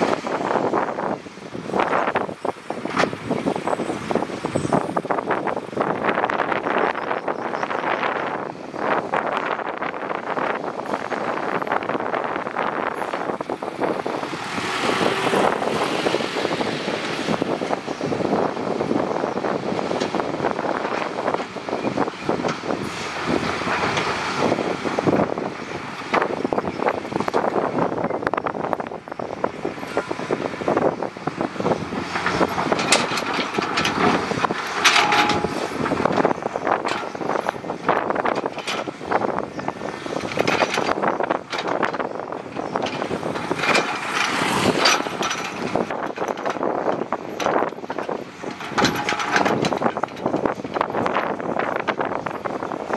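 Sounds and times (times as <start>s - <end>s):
heavy construction machinery: 0.0s - 52.9s
clattering and rattling: 30.8s - 52.9s.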